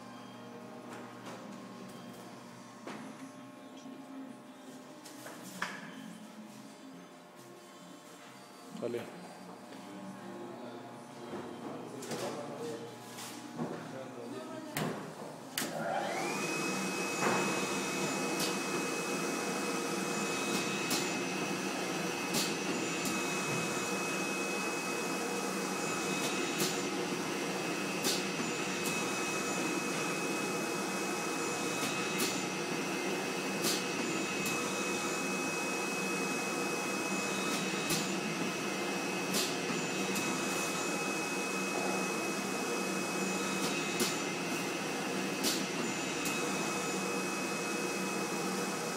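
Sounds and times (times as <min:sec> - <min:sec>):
machine motor whirring with whine: 0:15.6 - 0:48.9.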